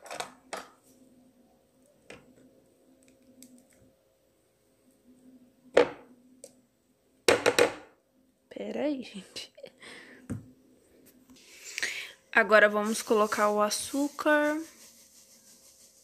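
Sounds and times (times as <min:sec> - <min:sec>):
faint steady hum: 0:00.0 - 0:16.0
spoon scraping plastic tub: 0:12.8 - 0:16.0.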